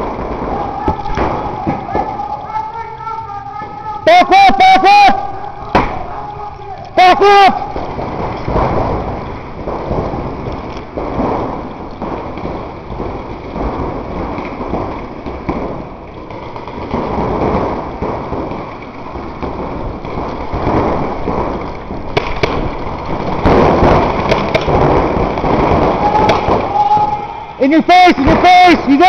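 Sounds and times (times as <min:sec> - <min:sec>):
paintballs smacking against bunkers: 0:00.0 - 0:02.5, 0:05.5 - 0:06.1, 0:06.8 - 0:27.3
paintball markers firing: 0:07.7 - 0:27.1.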